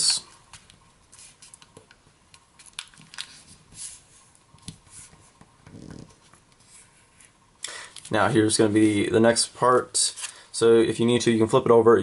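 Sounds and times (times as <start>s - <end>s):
paper rustling and folding: 2.6s - 5.4s.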